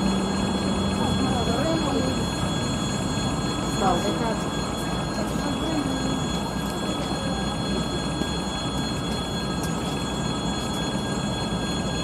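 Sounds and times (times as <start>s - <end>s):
diesel locomotive engine rumble: 0.0s - 12.0s.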